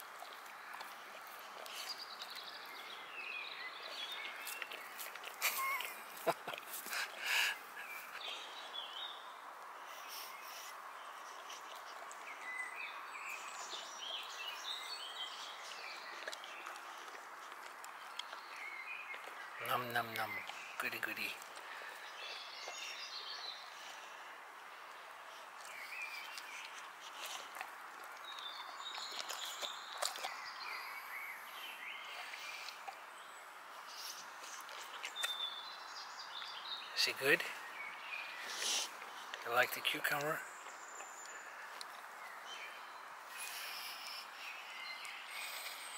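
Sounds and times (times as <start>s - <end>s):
dog crunching cucumber: 0.0s - 3.0s, 3.8s - 7.2s, 11.4s - 22.9s, 25.6s - 30.4s, 34.4s - 35.6s
outdoor background hiss: 0.0s - 45.9s
small birds chirping: 0.0s - 45.9s.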